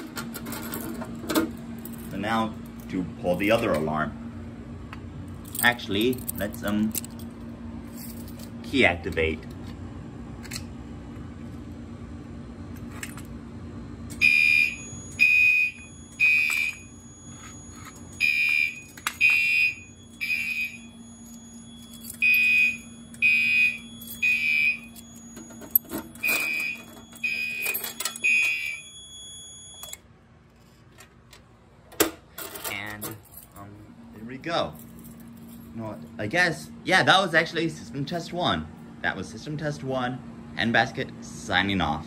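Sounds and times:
faint steady high whine: 0:00.1 - 0:42.0
fire alarm high-pitched beeps: 0:14.2 - 0:30.0.

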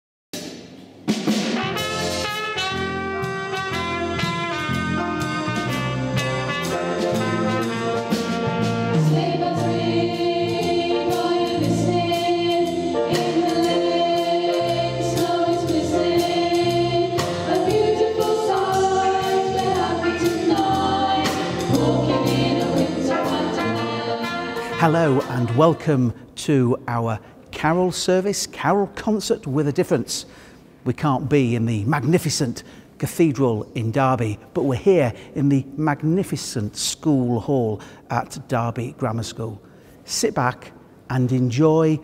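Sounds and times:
pop band playing live: 0:01.3 - 0:14.5
teenagers singing together: 0:08.8 - 0:26.2.

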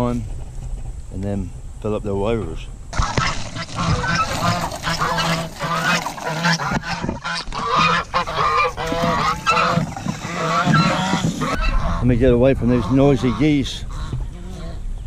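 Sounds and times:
hose water splashing on plastic: 0:03.0 - 0:11.6
geese honking: 0:03.0 - 0:14.8.

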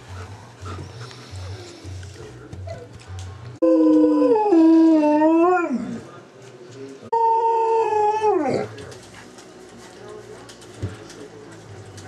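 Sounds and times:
dog howling: 0:03.6 - 0:06.0.

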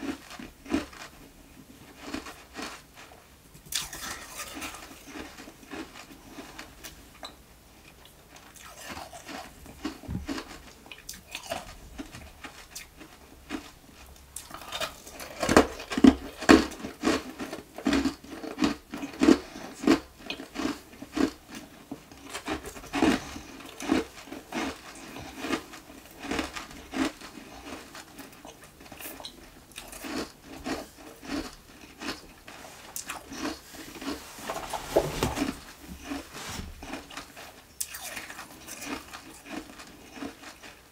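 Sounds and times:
ice crunching between teeth: 0:01.9 - 0:06.9, 0:14.4 - 0:34.2, 0:36.8 - 0:40.9.

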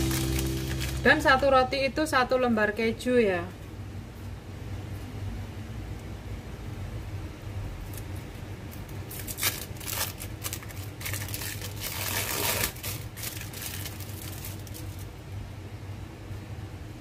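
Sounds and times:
plastic wrapper crinkling: 0:00.0 - 0:01.2, 0:08.8 - 0:15.2.

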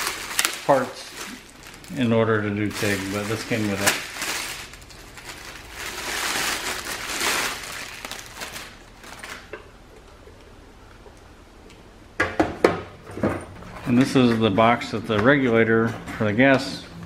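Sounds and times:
plastic bags crinkling: 0:00.0 - 0:09.7.

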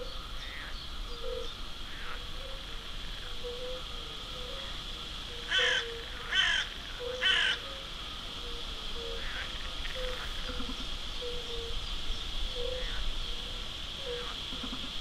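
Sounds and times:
crow cawing: 0:05.5 - 0:07.6.

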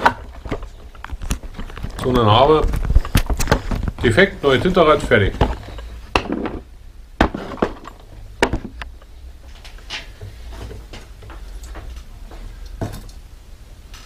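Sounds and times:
metal parts knocking and clattering: 0:07.2 - 0:08.8.

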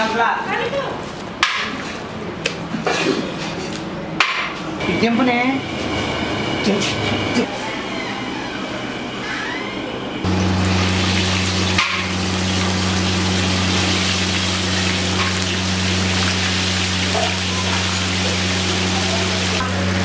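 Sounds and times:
low hum: 0:04.8 - 0:20.0
chicken sizzling in hot oil: 0:10.3 - 0:19.6.

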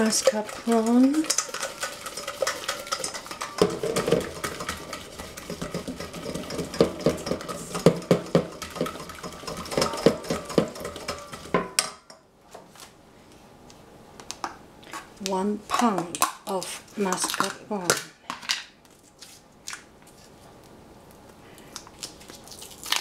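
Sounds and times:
whisk clicking against a pot: 0:00.0 - 0:11.9.

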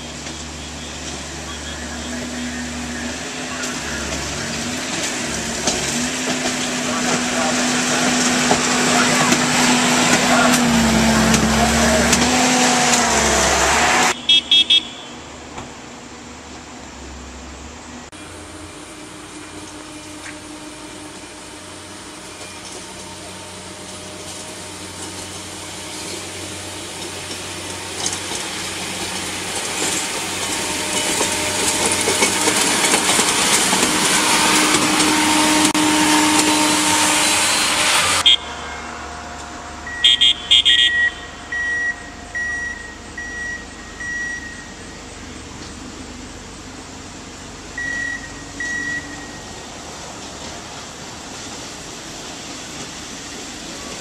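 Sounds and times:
rail machine engine and wheels: 0:00.0 - 0:54.0
short loud blasts: 0:06.5 - 0:15.2, 0:39.9 - 0:41.6
short electronic beeping: 0:38.2 - 0:38.8, 0:39.8 - 0:44.8.

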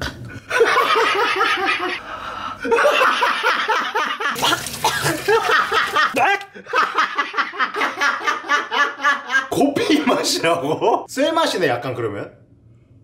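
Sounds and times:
man laughing: 0:02.6 - 0:11.1.

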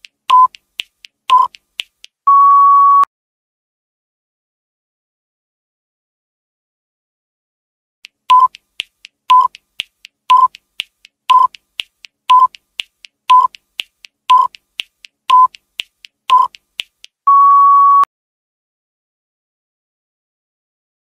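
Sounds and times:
timer short beeps: 0:00.3 - 0:00.6, 0:01.3 - 0:01.6, 0:08.3 - 0:08.6, 0:09.3 - 0:09.6, 0:10.3 - 0:10.6, 0:11.3 - 0:11.6, 0:12.3 - 0:12.6, 0:13.3 - 0:13.6, 0:14.3 - 0:14.6, 0:15.3 - 0:15.6, 0:16.3 - 0:16.6, 0:17.3 - 0:18.1.

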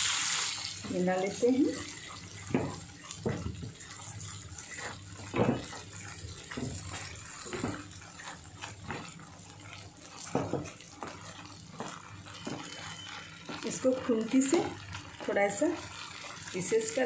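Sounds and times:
food sizzling in hot oil: 0:00.0 - 0:17.0
wooden spatula scraping pan: 0:02.6 - 0:15.6.

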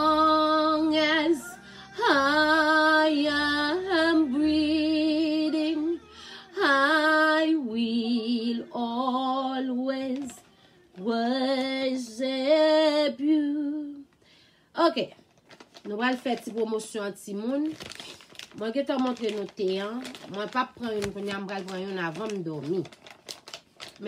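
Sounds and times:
woman singing worship song: 0:00.0 - 0:14.2.

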